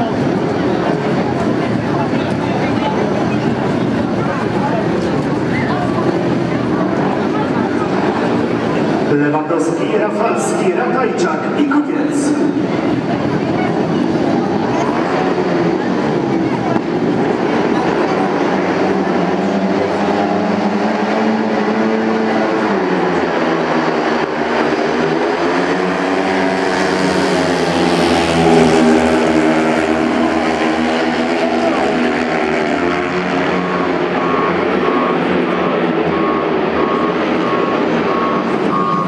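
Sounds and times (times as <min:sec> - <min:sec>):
motorcycles revving and racing: 0:00.0 - 0:39.0
repeating beep: 0:33.6 - 0:39.0.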